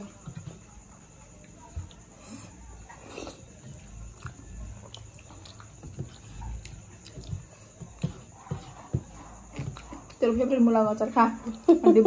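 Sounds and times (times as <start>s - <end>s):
chewing and lip-smacking: 2.9s - 10.2s.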